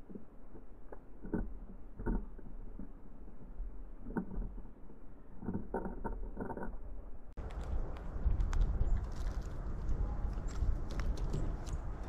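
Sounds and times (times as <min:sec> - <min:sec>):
birds pecking on wood: 0:07.4 - 0:12.0.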